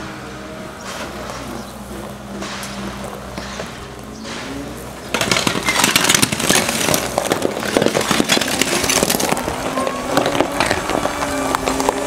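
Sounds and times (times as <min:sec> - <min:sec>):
loader engine running: 0:00.0 - 0:12.0
clatter and crunch of tiles: 0:05.1 - 0:12.0.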